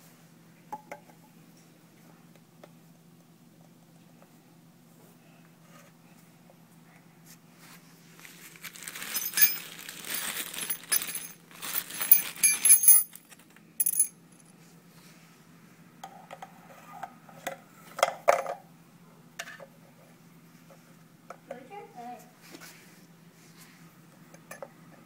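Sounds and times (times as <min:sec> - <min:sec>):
plastic tube crinkling: 0:08.2 - 0:12.4
metal clinks: 0:09.0 - 0:14.5.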